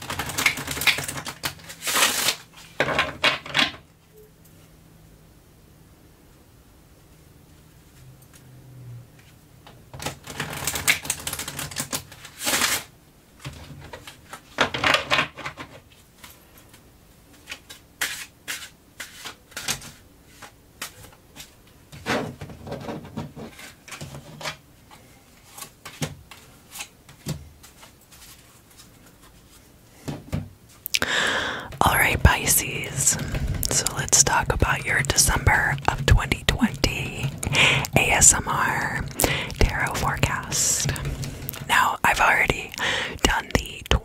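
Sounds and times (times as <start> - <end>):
cards rustling and sliding: 17.5 - 21.5.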